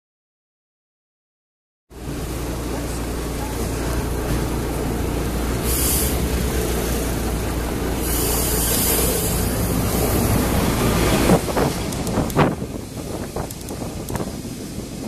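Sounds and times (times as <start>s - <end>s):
tram wheels rumbling on rails: 1.9s - 15.0s
short bursts of hiss: 5.6s - 6.4s, 8.0s - 10.1s.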